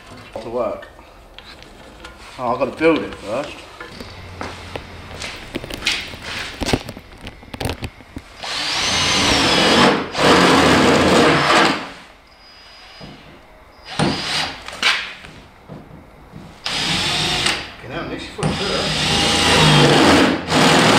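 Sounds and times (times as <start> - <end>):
cordless drill whining: 8.4 - 11.8, 13.9 - 14.6, 16.6 - 17.7, 18.5 - 20.9.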